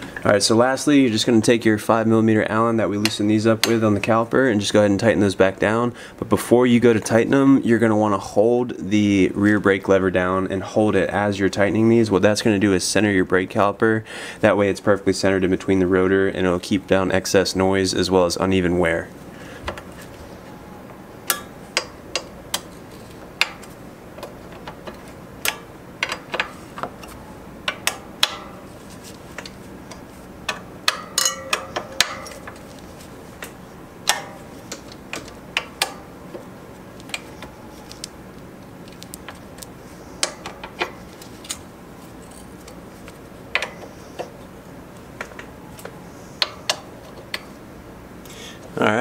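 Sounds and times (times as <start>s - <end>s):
hex driver tightening bolts: 43.5s - 44.5s.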